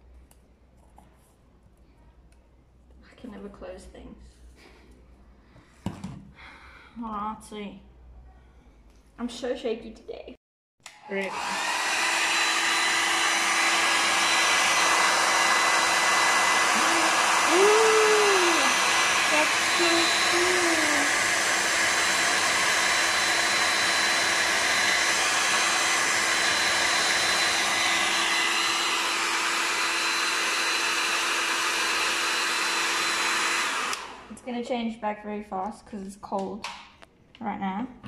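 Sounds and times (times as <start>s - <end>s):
hair dryer running: 10.8s - 34.4s.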